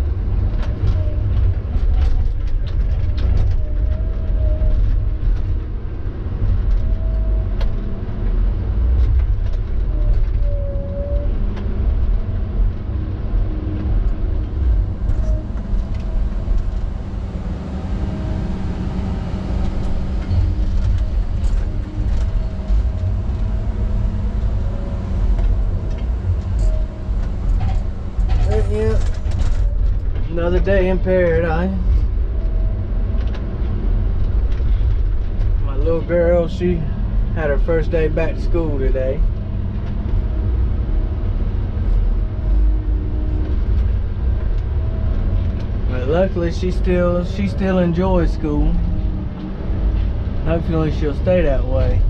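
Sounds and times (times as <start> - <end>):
diesel engine under load: 0.0 - 52.0
faint wavering whine: 9.9 - 34.8.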